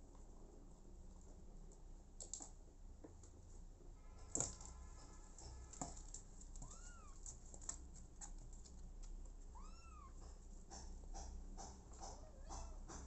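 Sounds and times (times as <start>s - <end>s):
clicks and rustles of movement: 4.2s - 9.4s.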